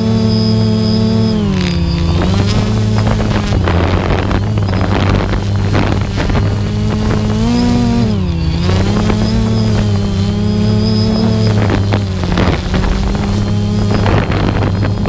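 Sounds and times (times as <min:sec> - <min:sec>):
small aircraft engine humming: 0:00.0 - 0:15.0
wind buffeting microphone: 0:00.0 - 0:15.0.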